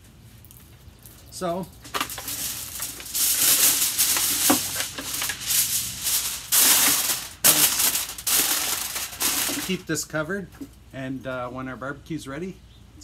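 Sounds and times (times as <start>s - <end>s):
aluminium foil crinkling: 0.6s - 9.9s.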